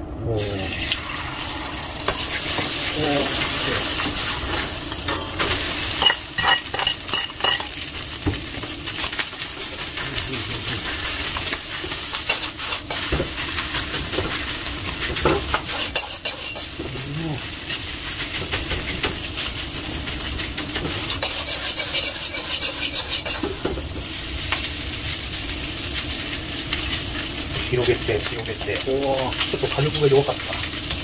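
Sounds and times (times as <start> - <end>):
egg sizzling in hot oil: 0.6 - 31.0.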